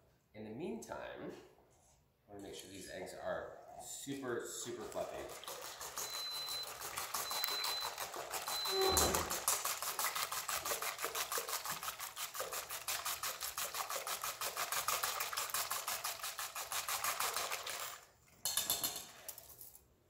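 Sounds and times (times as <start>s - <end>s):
whisk rattling in metal bowl: 4.6s - 19.6s.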